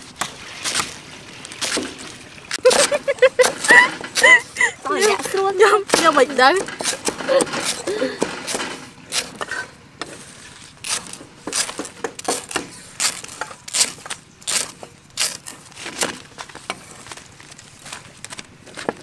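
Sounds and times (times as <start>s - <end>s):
cleaver chopping on wooden board: 5.9s - 9.5s, 10.9s - 15.4s.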